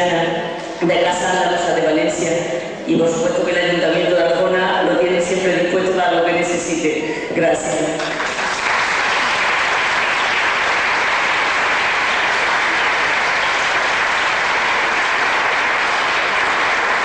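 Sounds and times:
person giving speech: 0.0 - 8.1
audience applauding: 8.0 - 17.0.

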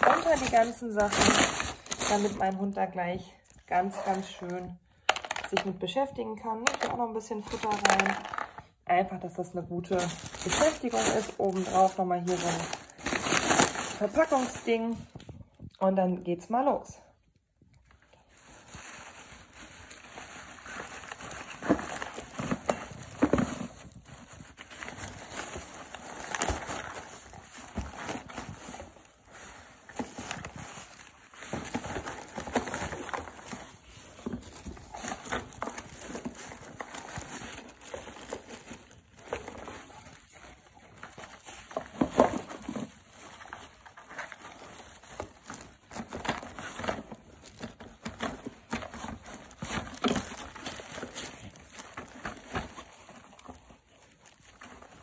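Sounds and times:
dog digging through packaging: 0.0 - 2.6
plastic rustling and crinkling: 0.0 - 5.7, 6.4 - 8.8, 9.4 - 15.8, 17.7 - 55.0.

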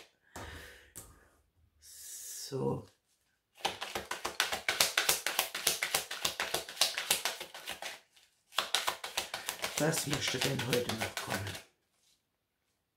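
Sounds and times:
cards being shuffled: 3.6 - 12.1.

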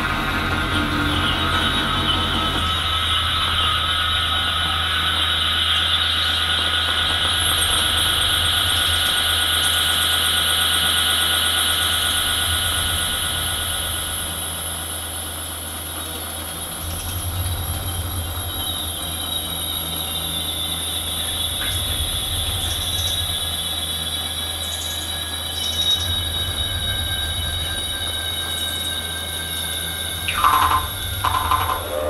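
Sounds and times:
high whining electronic tones: 26.0 - 32.0
low hum: 29.8 - 32.0
soft electronic blips: 30.3 - 32.0.

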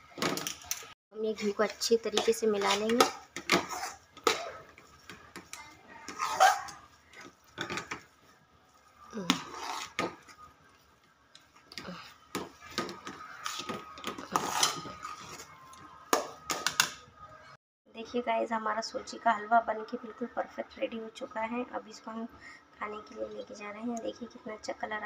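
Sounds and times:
metal spatula scraping a pan: 1.4 - 4.7, 13.0 - 15.5.

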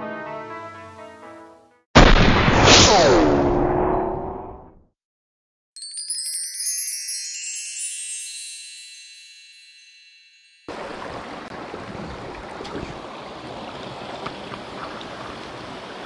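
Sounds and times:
shimmering chime: 5.8 - 10.7
mountain stream rushing: 10.7 - 16.0.

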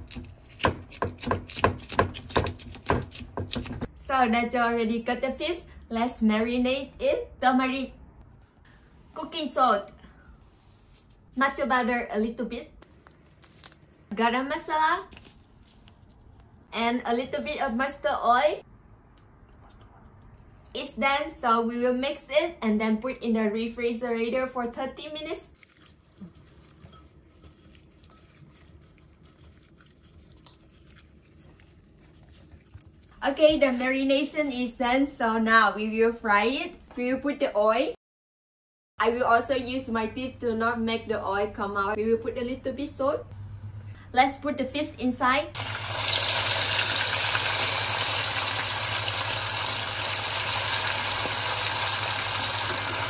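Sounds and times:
wet squishing of hands mixing fish: 25.2 - 34.5
fish sizzling in hot oil: 45.6 - 53.0.

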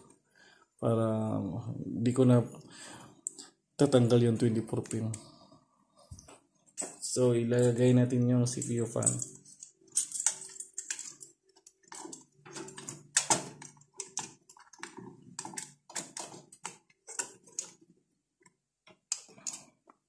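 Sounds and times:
cpu cooler clicks and scrapes: 11.6 - 17.8.

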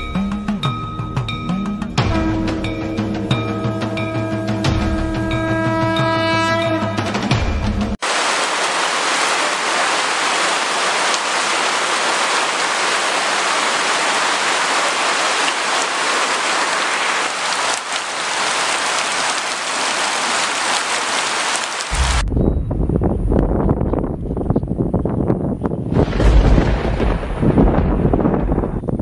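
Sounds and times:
rain falling on puddles: 8.0 - 22.3.

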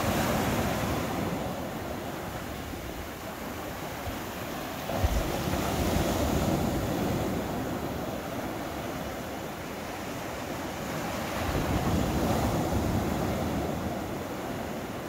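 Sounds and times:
small waves breaking on sand: 0.0 - 15.0.

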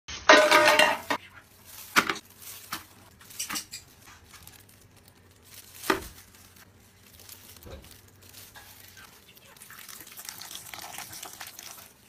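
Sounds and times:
bowl clattering on tabletop: 0.3 - 1.2.

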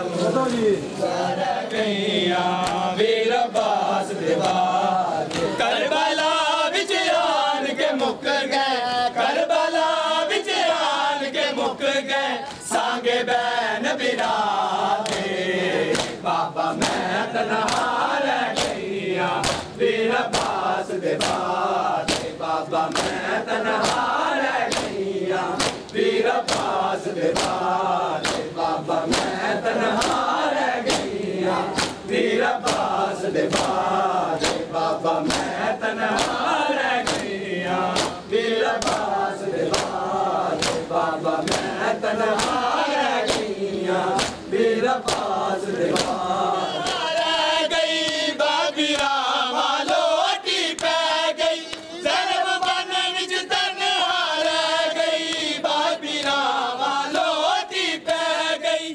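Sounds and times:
crowd of men chanting: 0.0 - 58.9
male voices singing: 0.0 - 58.9
chest-beating slaps: 15.9 - 16.2, 16.8 - 18.8, 19.4 - 23.2, 23.8 - 25.0, 25.6 - 29.4, 30.0 - 43.5, 44.1 - 46.2.

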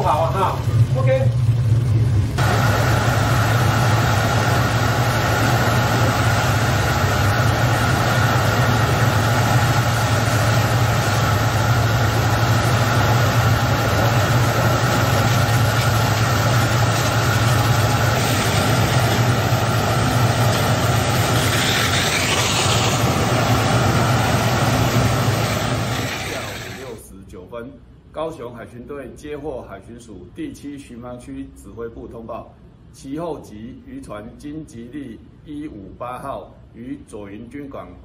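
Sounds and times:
boat engines droning: 0.0 - 27.0
water cannon spraying: 2.4 - 27.0.

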